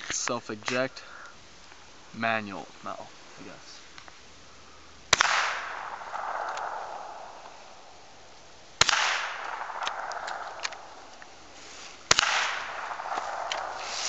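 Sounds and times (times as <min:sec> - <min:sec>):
rifle shots with echo: 0:05.1 - 0:11.1, 0:12.1 - 0:14.0.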